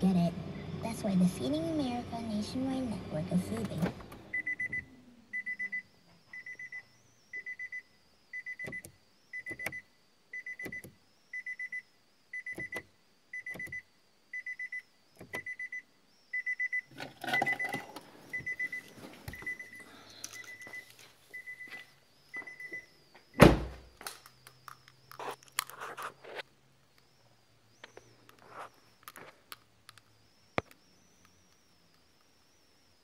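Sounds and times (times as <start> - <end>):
car warning chime beeping: 4.2 - 23.4.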